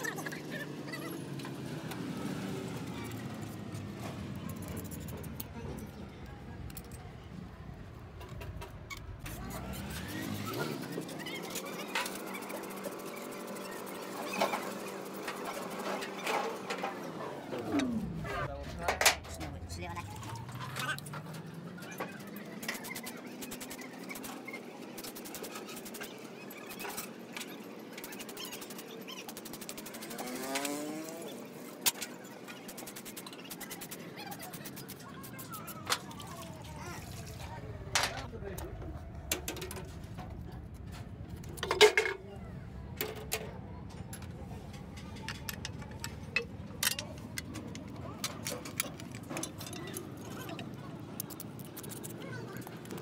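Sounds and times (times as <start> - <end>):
metal tools clicking and clinking: 6.6 - 7.1, 39.3 - 42.2, 42.9 - 53.0
brush scrubbing metal: 32.0 - 37.4.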